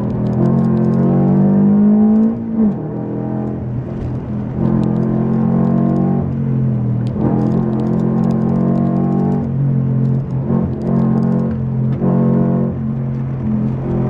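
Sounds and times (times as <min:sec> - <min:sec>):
car engine revving: 0:00.0 - 0:14.0.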